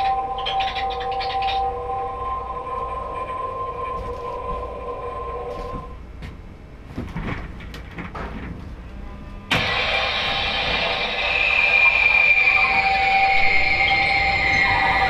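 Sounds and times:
loud noise with high tone: 0.0s - 6.0s, 9.5s - 15.0s.

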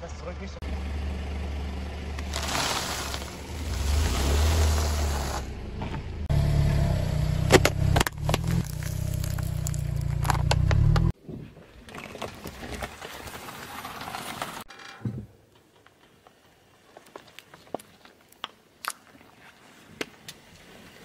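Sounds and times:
low engine hum: 0.4s - 11.2s
crackling under a tyre: 2.1s - 6.0s, 7.5s - 14.9s, 15.5s - 21.0s.

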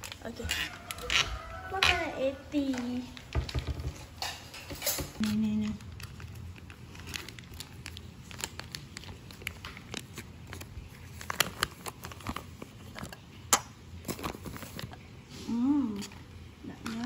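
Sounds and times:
plastic packet crinkling: 0.0s - 2.0s, 5.2s - 13.4s.

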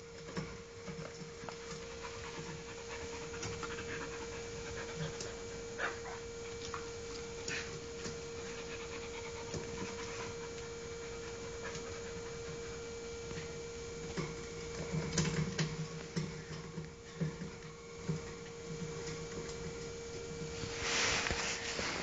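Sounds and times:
faint steady hum: 0.0s - 22.0s
dog panting: 1.5s - 6.7s, 7.4s - 13.0s.

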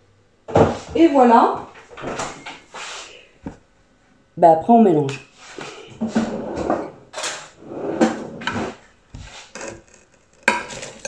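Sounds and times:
drawer sliding: 6.0s - 10.0s.

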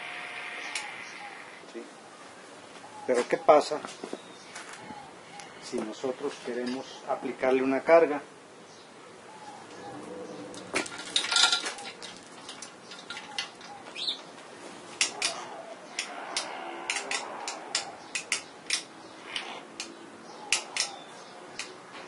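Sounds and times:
metallic chain clicks and clinks: 10.8s - 13.7s.

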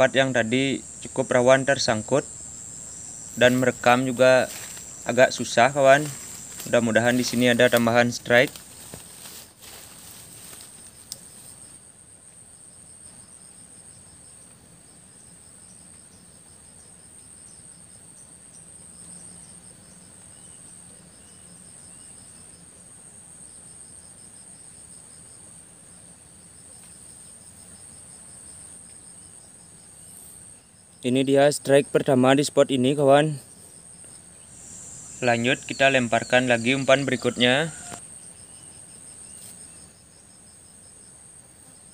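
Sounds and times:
pulsing insect chirps: 0.0s - 11.8s, 27.7s - 41.0s
insects trilling: 0.0s - 41.9s.

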